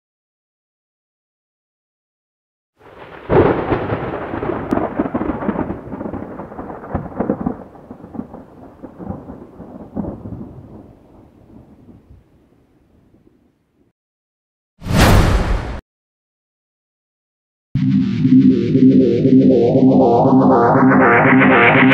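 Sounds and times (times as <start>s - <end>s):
thunder clap and rumbles: 2.9s - 12.2s.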